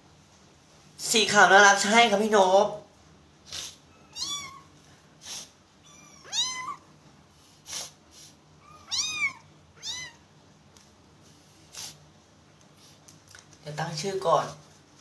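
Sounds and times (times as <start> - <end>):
kitten meowing: 4.0 - 4.8, 5.8 - 6.9, 8.6 - 10.2.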